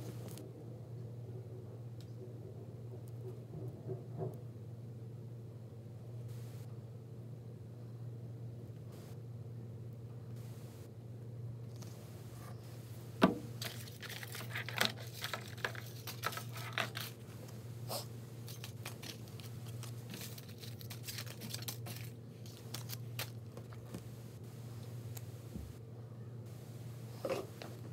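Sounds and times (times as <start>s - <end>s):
paper crinkling and clicks: 13.6s - 17.5s, 18.4s - 24.2s.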